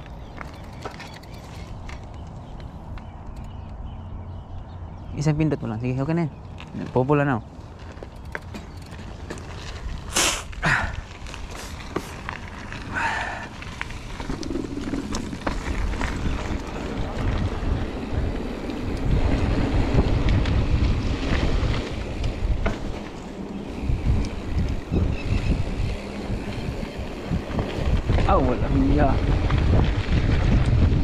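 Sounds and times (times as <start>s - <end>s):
bike rattles and clicks: 0.0s - 31.0s
wind buffeting microphone: 0.0s - 31.0s
tyre rumble over dirt: 6.6s - 31.0s.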